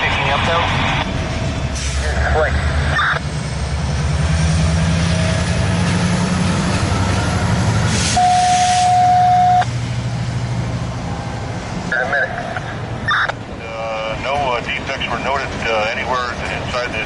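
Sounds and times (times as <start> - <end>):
diesel locomotive running: 0.0 - 17.0
air hiss: 7.9 - 9.0
steady high tone: 8.2 - 9.7.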